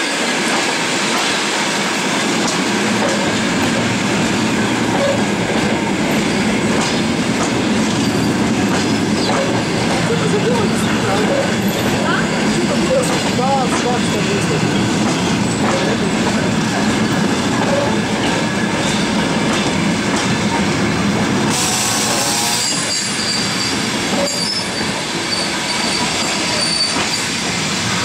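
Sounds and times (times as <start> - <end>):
train wheels rumbling on rails: 0.0 - 28.0
high wheel squeals: 21.6 - 27.4.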